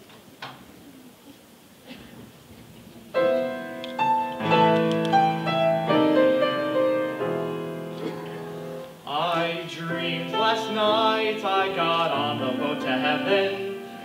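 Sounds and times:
grand piano playing show tune: 0:03.2 - 0:14.0.

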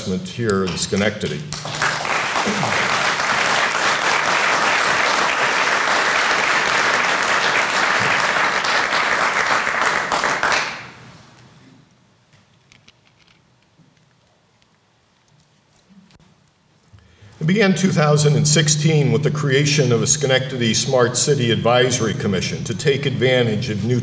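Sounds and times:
audience applauding: 0:01.5 - 0:11.0.

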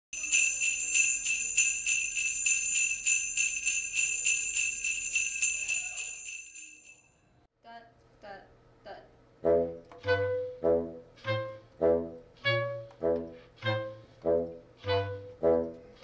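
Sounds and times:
sleigh bells shaken: 0:00.2 - 0:07.1.

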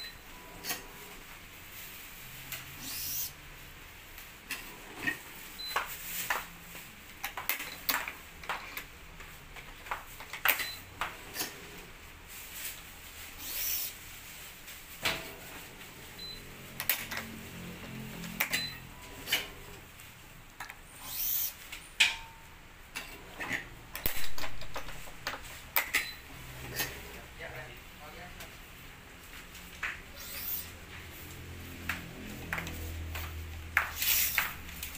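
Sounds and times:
string swishing through racket: 0:33.8 - 0:34.6.

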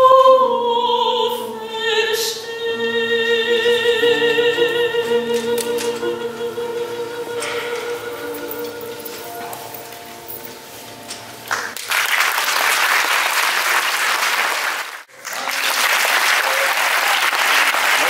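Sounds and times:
soprano singing with piano: 0:00.0 - 0:10.8
audience applause: 0:11.5 - 0:18.0.

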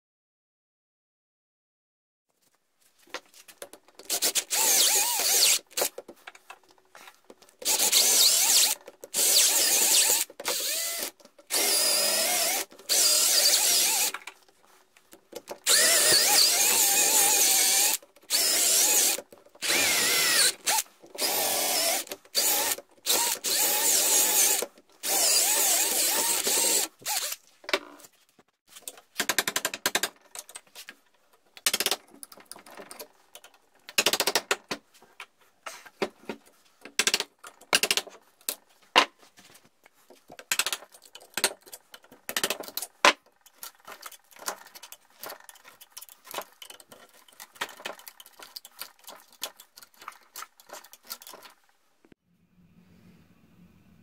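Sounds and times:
electric drill boring wood: 0:04.1 - 0:05.7, 0:07.6 - 0:14.2, 0:15.6 - 0:27.4
clicks and scrapes picking wood: 0:28.7 - 0:51.7.

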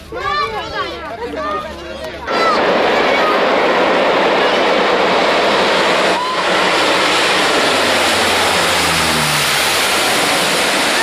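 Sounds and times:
plane flying low overhead: 0:02.3 - 0:11.0.

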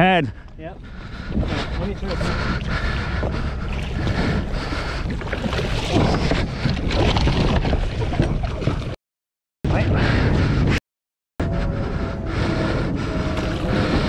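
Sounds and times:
wind buffeting microphone: 0:00.4 - 0:09.0, 0:09.7 - 0:10.8, 0:11.4 - 0:14.0
fish thrashing and splashing water: 0:02.2 - 0:09.0, 0:13.4 - 0:14.0.

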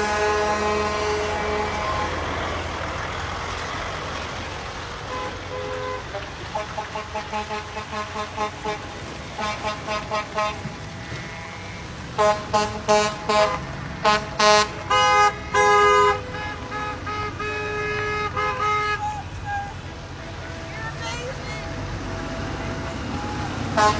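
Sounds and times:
car and truck horns honking: 0:00.0 - 0:03.0, 0:05.0 - 0:23.9
vehicle engines and tyres: 0:00.0 - 0:23.9.

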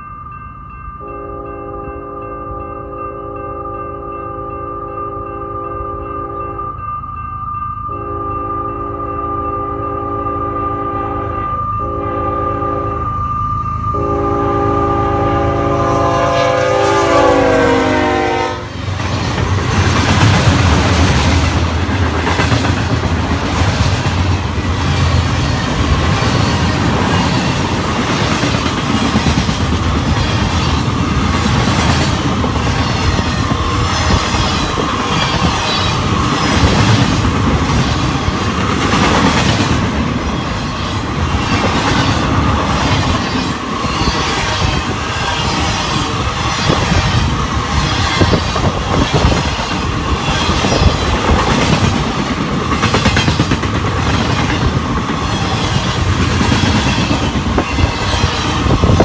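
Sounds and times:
freight train rolling past: 0:00.0 - 0:59.0
locomotive air horn: 0:01.0 - 0:06.6, 0:07.9 - 0:13.2, 0:13.9 - 0:18.8
wheels clacking over rail joints: 0:18.8 - 0:59.0.

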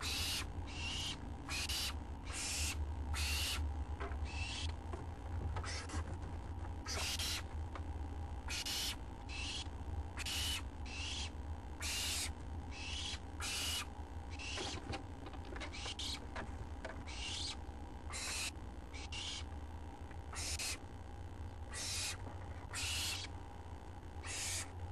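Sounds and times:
owlets hissing begging calls: 0:00.0 - 0:03.6, 0:06.9 - 0:07.4, 0:08.5 - 0:14.6, 0:17.1 - 0:19.5, 0:20.4 - 0:20.8, 0:21.7 - 0:23.3, 0:24.2 - 0:24.7
steady low hum: 0:00.0 - 0:24.9.

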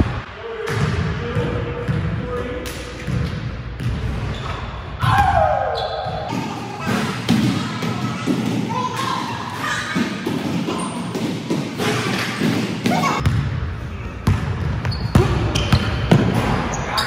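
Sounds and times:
sneaker squeaks: 0:03.8 - 0:04.9, 0:05.7 - 0:07.1, 0:09.0 - 0:13.3, 0:14.8 - 0:17.0
players' voices: 0:05.0 - 0:17.0.

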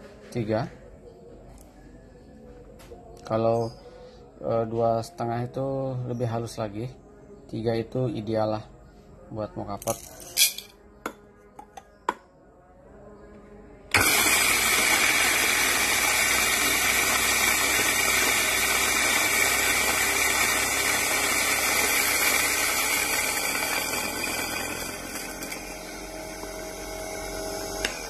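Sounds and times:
coffee grinder grinding beans: 0:13.9 - 0:28.0.

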